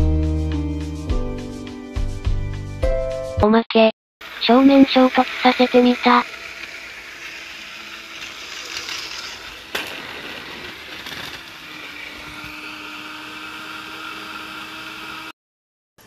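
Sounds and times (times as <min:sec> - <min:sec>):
toy train motors whirring: 0:04.2 - 0:15.3
toy trains clacking together: 0:04.4 - 0:11.8
toy train car knocked off rails: 0:05.5 - 0:12.5.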